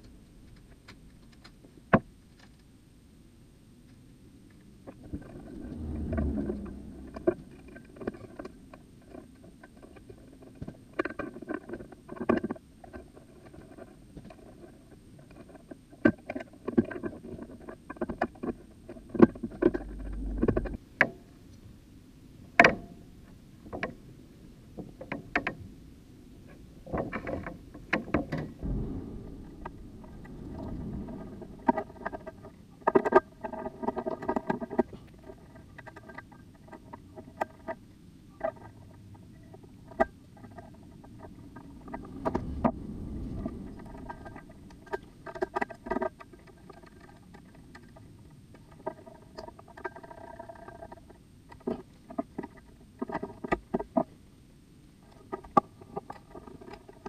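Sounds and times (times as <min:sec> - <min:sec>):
low thumps: 0:05.1 - 0:07.7, 0:28.5 - 0:32.6.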